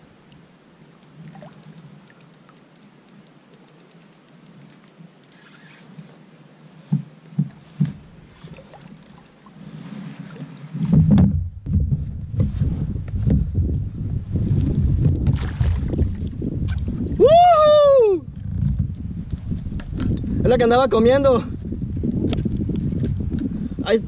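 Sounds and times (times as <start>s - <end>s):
fishing reel ticking: 1.0s - 6.1s, 8.9s - 9.4s
dull knocks: 10.9s - 12.6s
low rumbling noise: 10.9s - 22.2s.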